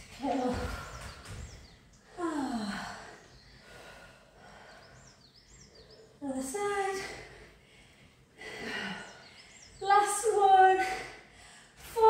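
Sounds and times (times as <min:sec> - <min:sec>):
faint bird chirps: 0:00.4 - 0:07.3, 0:08.6 - 0:10.2.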